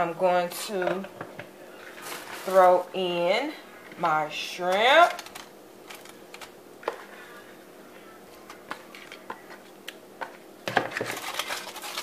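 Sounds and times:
aluminum foil crinkling: 1.8s - 2.8s, 5.0s - 6.6s, 10.8s - 12.0s.

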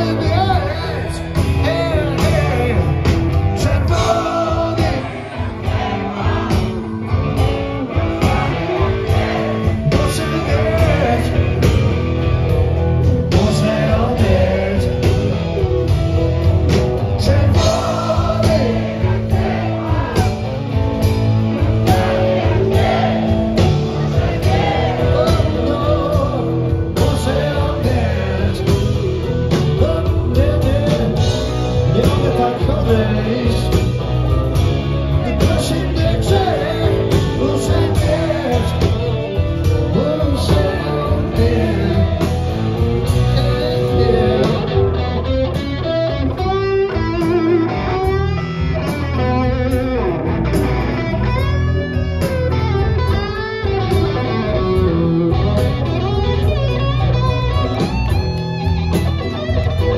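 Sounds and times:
man singing lead vocal: 0.0s - 7.1s, 7.8s - 16.0s, 17.0s - 21.0s, 21.6s - 45.0s
live rock band playing: 0.0s - 59.9s.

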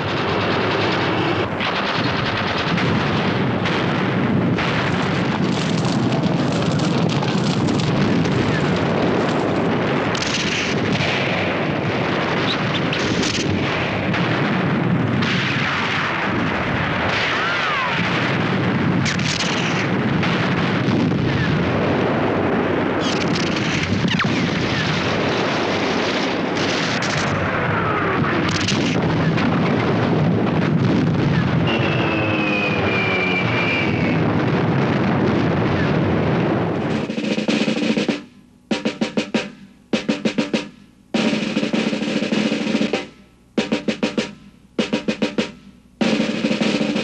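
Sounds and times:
gunfire: 0.0s - 22.1s, 23.0s - 36.2s, 36.8s - 47.0s
shell explosions: 0.0s - 47.0s
falling shell whistles: 31.6s - 34.2s.

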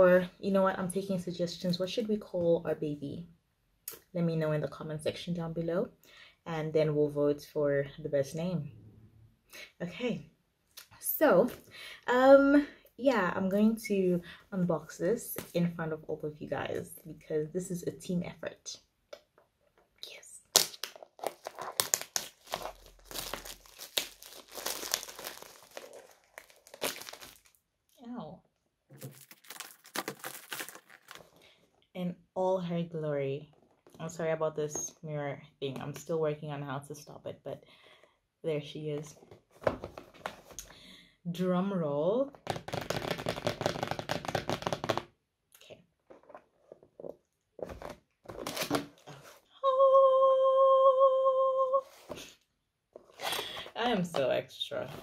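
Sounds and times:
plastic wrap crinkling and tearing: 20.5s - 27.6s, 28.9s - 31.4s
woman singing a long note: 49.6s - 51.9s.

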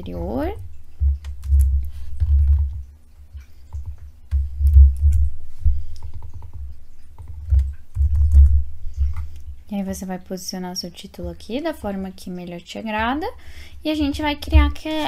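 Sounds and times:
dull low thuds: 0.3s - 2.9s, 3.7s - 9.3s.

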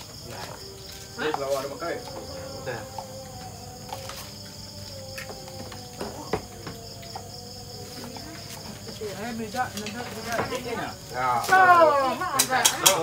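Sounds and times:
crickets and night insects chirping: 0.0s - 13.0s
spoons clinking on plates: 12.3s - 13.0s.

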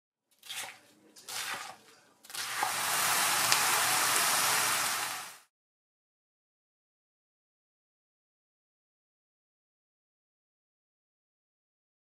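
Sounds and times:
knife cutting cabbage on board: 0.4s - 2.7s
food sizzling in a pan: 1.3s - 5.5s.

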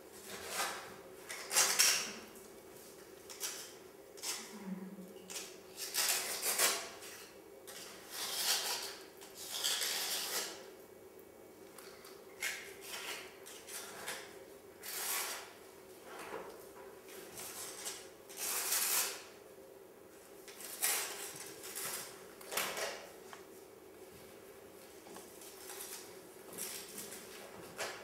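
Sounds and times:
hands scraping plaster wall: 5.3s - 10.6s, 17.4s - 19.2s.

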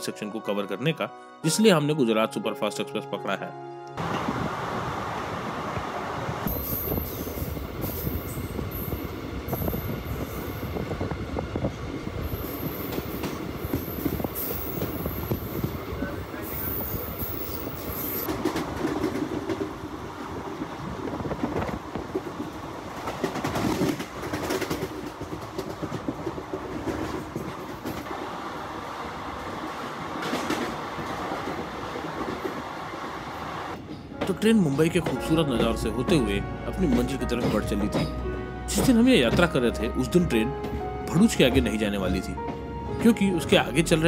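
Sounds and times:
train rumbling over rails: 4.0s - 44.0s
wheels clattering over rail joints: 21.2s - 28.2s.

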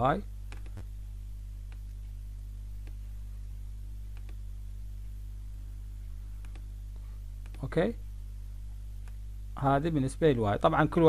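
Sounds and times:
low electrical hum: 0.0s - 11.0s
faint clicks: 0.5s - 0.9s, 4.1s - 4.4s, 6.4s - 6.7s.

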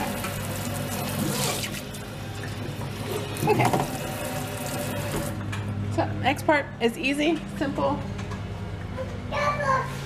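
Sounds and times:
faucet running into steel sink: 0.0s - 5.4s.

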